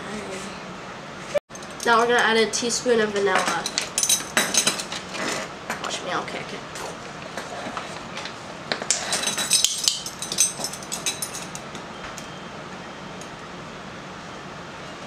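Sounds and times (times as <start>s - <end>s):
metal measuring spoons clinking: 3.3s - 5.0s, 8.9s - 11.6s.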